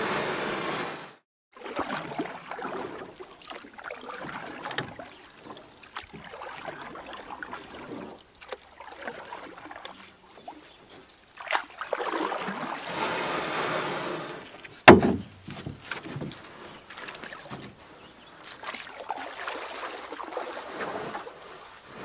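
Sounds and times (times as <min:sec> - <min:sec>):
water dripping off paddle: 0:01.7 - 0:12.8
paddle swishing stroke: 0:01.7 - 0:22.0.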